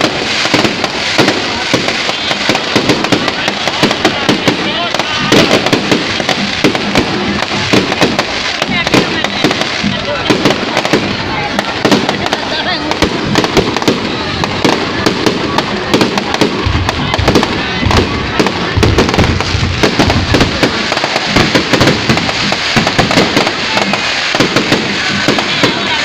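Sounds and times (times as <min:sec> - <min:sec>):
fireworks crackling and popping: 0:00.0 - 0:26.0.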